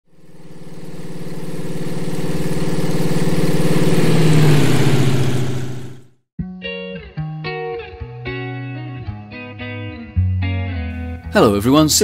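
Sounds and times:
propeller aircraft flying past: 0:00.1 - 0:06.1.

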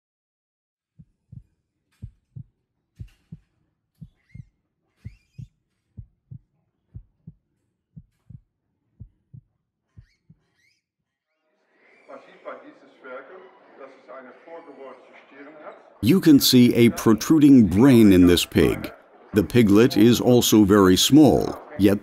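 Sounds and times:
heartbeat thumps: 0:01.0 - 0:10.5.

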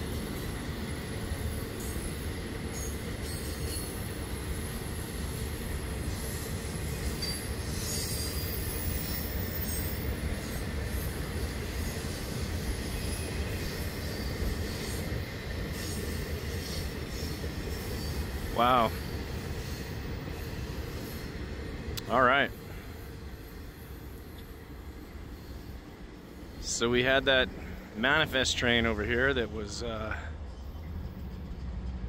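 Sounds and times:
train wheels rumbling on rail: 0:00.0 - 0:32.0
high wheel squeal: 0:02.7 - 0:05.0, 0:06.0 - 0:21.3.

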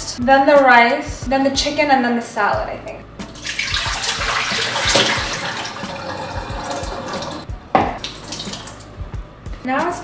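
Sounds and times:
tap running water into sink: 0:03.4 - 0:08.9.

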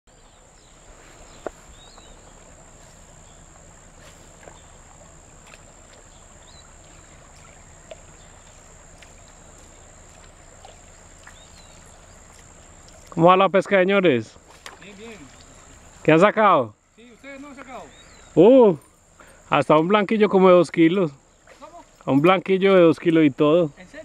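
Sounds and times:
bird chirps: 0:00.1 - 0:05.1, 0:06.0 - 0:13.1, 0:16.8 - 0:19.4
faint low hum: 0:00.1 - 0:22.3.

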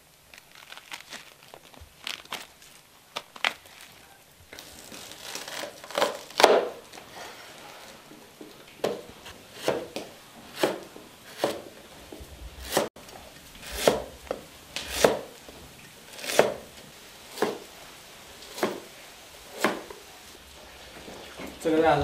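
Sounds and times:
cleaver slicing on cutting board: 0:09.5 - 0:11.6, 0:12.6 - 0:12.9, 0:13.6 - 0:15.3, 0:16.1 - 0:16.7.

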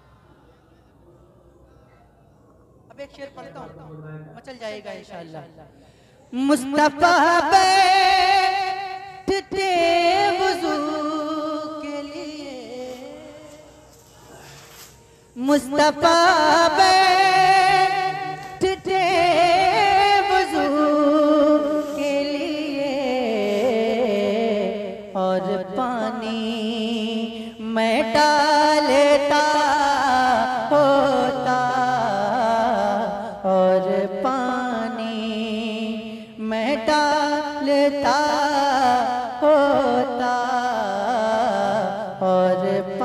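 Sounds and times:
man singing: 0:15.4 - 0:43.0.

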